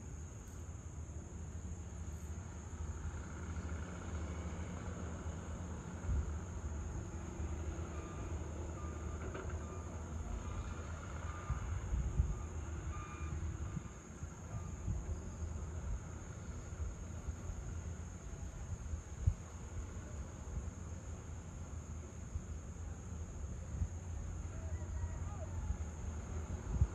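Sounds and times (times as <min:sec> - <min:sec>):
distant traffic rumble: 0:00.0 - 0:26.9
faint short beeps: 0:12.8 - 0:13.5.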